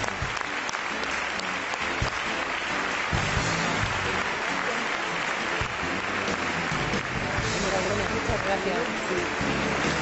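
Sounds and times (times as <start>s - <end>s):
audience applauding: 0.0s - 10.0s
background music: 0.0s - 10.0s.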